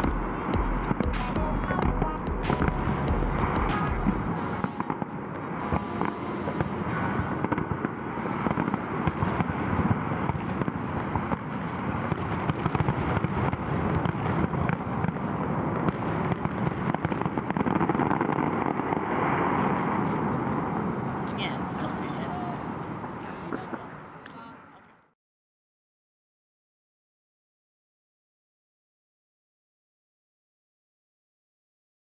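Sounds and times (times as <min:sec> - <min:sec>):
fireworks bursting and crackling: 0:00.0 - 0:24.7.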